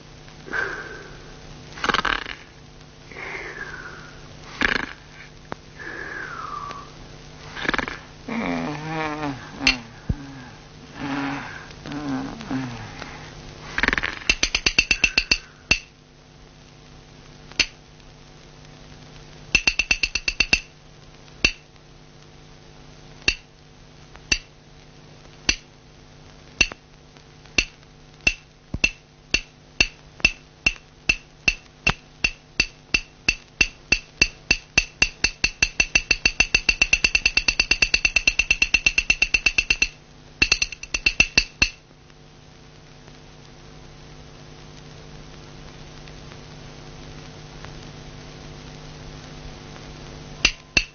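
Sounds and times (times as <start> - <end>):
wood block percussion strikes: 14.2 - 15.9, 19.6 - 20.7, 21.4 - 21.6, 23.3 - 23.5, 24.3 - 24.5, 27.6 - 41.8, 50.4 - 50.9.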